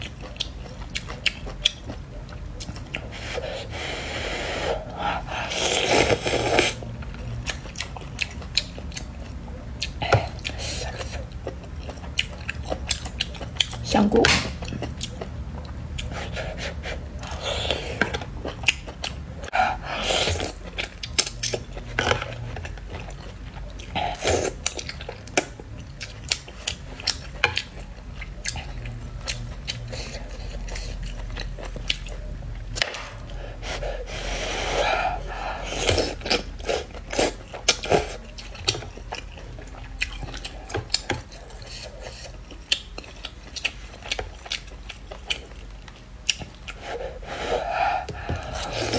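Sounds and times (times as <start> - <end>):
chewing and mouth sounds: 0.0 - 3.5, 4.8 - 33.9, 34.6 - 48.9
slurping noodles: 3.1 - 6.9.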